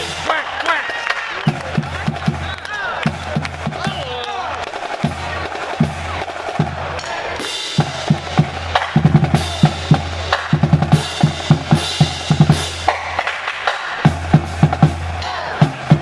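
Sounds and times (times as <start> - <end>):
bass drums and snare drums: 0.0 - 16.0.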